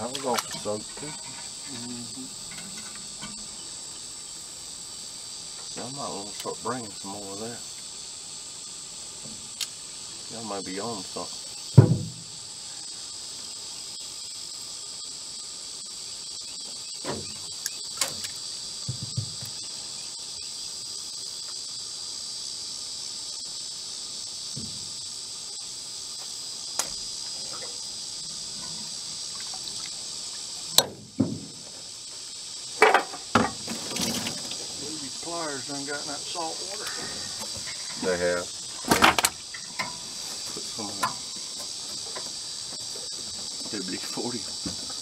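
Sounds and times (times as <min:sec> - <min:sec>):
insects droning: 0:00.0 - 0:45.0.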